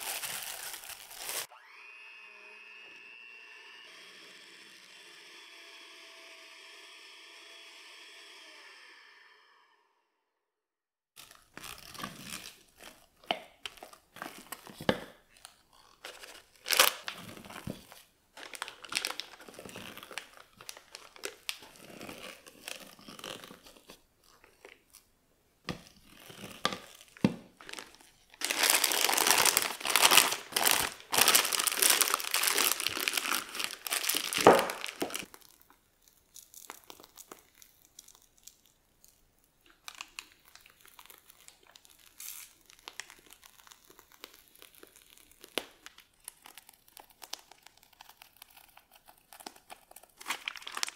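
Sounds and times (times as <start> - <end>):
plastic piping bag crinkling: 0.0 - 1.5, 11.2 - 50.9
electric hand mixer running: 1.4 - 9.5.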